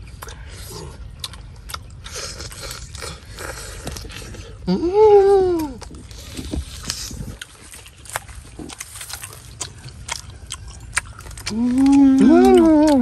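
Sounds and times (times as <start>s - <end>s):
crunchy chewing smacks: 0.0s - 13.0s
person humming mmm: 4.6s - 5.9s, 11.4s - 13.0s
meat and skin tearing: 5.5s - 13.0s.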